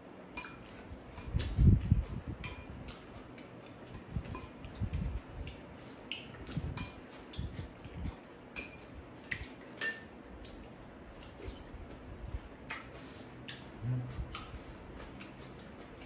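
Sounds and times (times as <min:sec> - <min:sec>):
soft eating sounds: 0:00.1 - 0:16.0
spoons clinking against bowls: 0:08.5 - 0:09.0, 0:09.8 - 0:10.2.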